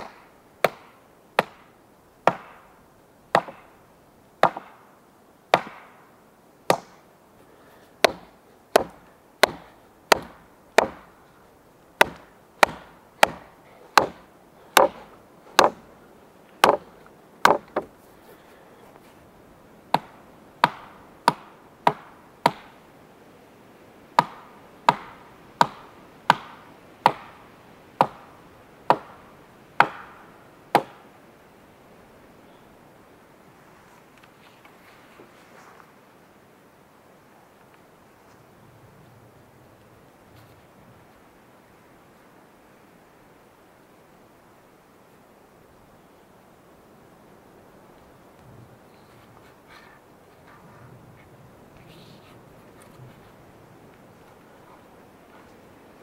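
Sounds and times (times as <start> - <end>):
hand tool striking wood: 0.0 - 2.6, 3.4 - 3.7, 4.4 - 4.8, 5.5 - 6.0, 6.7 - 7.0, 8.0 - 11.1, 12.0 - 15.8, 16.6 - 17.9, 19.9 - 22.8, 24.2 - 27.4, 28.0 - 28.3, 29.8 - 31.0.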